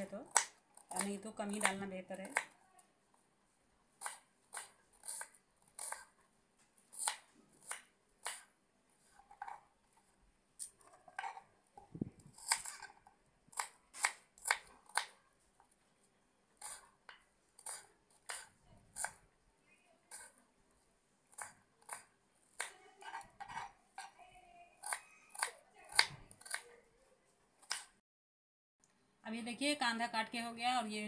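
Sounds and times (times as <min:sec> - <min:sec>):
knife chopping on wooden board: 0:13.5 - 0:15.2, 0:24.8 - 0:26.7.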